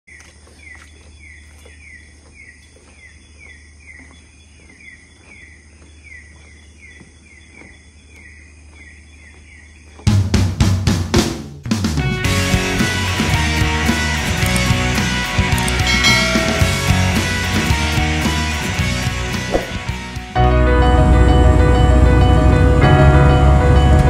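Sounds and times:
drum-led music: 0:10.1 - 0:20.4.

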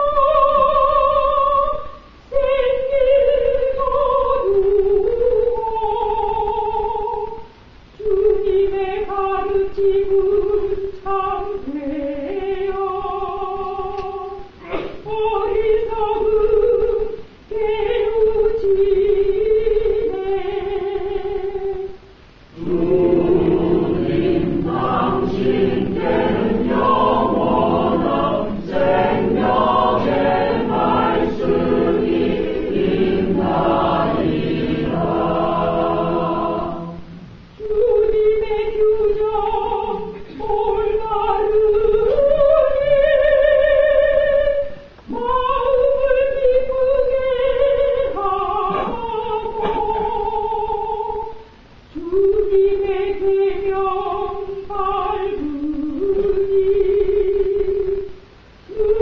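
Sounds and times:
woman singing psalm: 0:00.0 - 0:58.1
church choir singing: 0:22.6 - 0:38.1.

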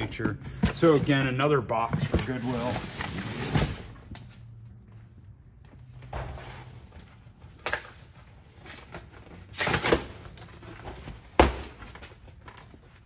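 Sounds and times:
cardboard boxes rustling and scuffing: 0:00.0 - 0:04.0.

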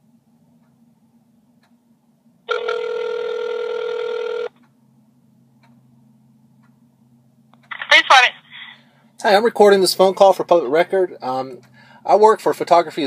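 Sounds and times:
telephone ringback tone: 0:02.5 - 0:04.5.

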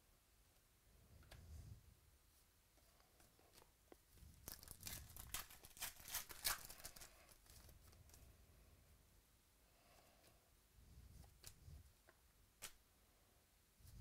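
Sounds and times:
cards crackling and snapping: 0:04.4 - 0:08.2.

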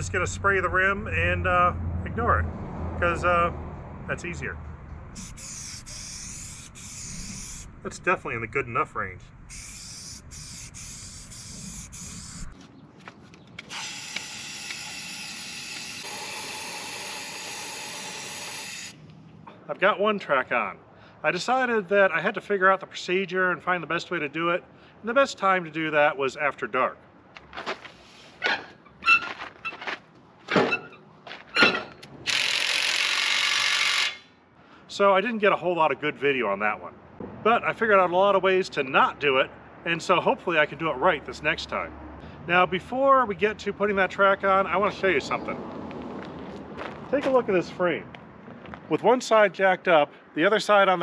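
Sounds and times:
spray paint can hissing: 0:05.2 - 0:07.7, 0:09.5 - 0:12.6
metal knocks and clanks: 0:30.5 - 0:32.1.

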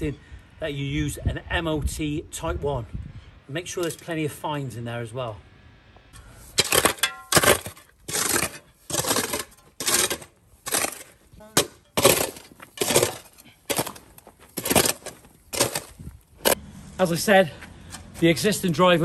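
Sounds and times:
shovel scraping crushed stone: 0:06.5 - 0:16.6.

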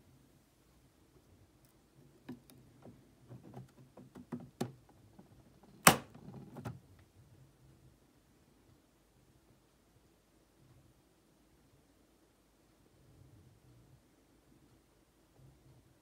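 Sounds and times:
small clicks and light knocks: 0:01.2 - 0:07.1.

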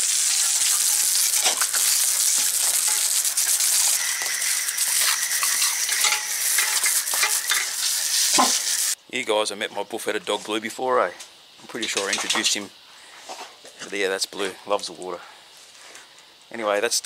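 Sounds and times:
garden hose spraying water: 0:00.0 - 0:09.0.

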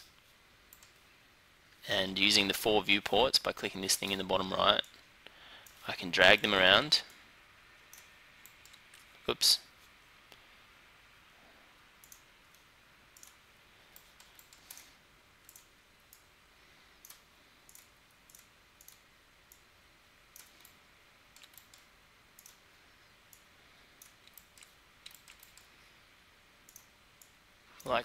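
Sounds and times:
low steady hiss: 0:00.0 - 0:28.0
computer mouse clicks: 0:00.7 - 0:01.0, 0:07.9 - 0:09.1, 0:12.0 - 0:16.3, 0:17.0 - 0:19.7, 0:20.3 - 0:22.6, 0:23.3 - 0:25.8, 0:26.6 - 0:27.9.

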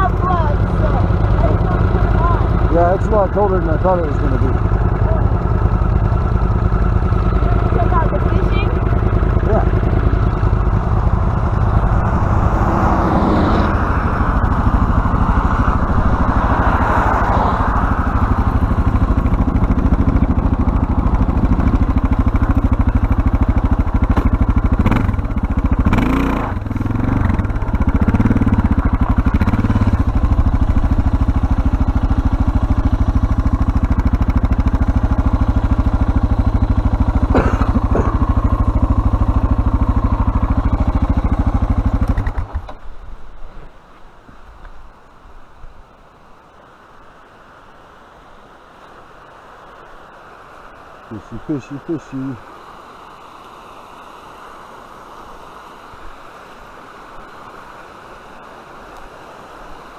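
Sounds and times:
motorcycle engine running: 0:00.0 - 0:43.7.

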